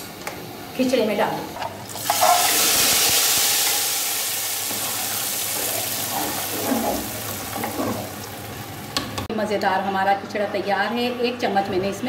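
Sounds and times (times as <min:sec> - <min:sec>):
hot oil sizzling: 0:01.8 - 0:09.2.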